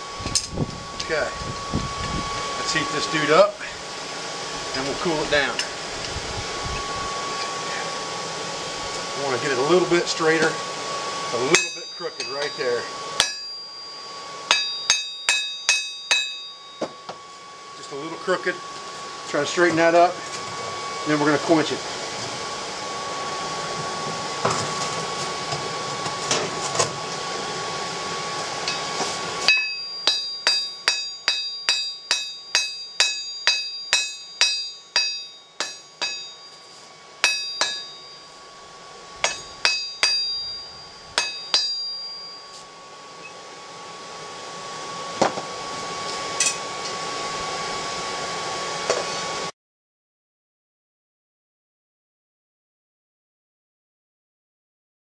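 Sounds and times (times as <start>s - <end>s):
forge air blower whirring: 0.0s - 49.5s
hammer ringing on anvil: 11.5s - 17.1s, 28.7s - 38.4s, 39.2s - 42.6s.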